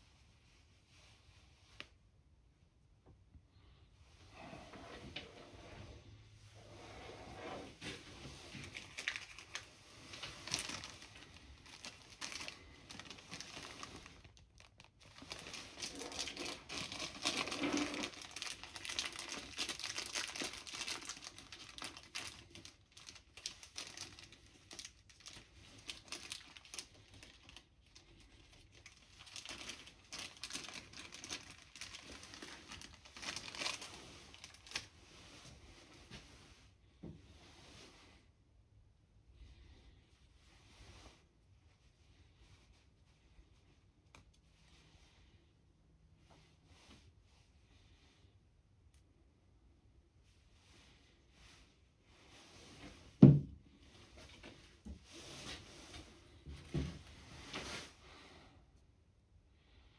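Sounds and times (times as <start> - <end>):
crinkling rustling handling noise: 4.1 - 38.2, 50.6 - 58.3.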